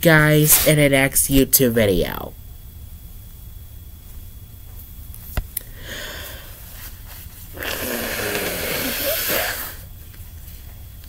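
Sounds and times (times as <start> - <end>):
person blowing nose into tissue: 5.8 - 9.9.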